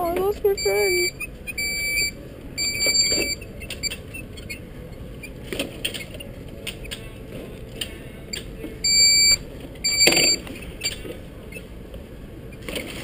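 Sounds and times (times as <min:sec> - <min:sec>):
high warning beeps: 0:00.4 - 0:04.6, 0:08.8 - 0:11.7.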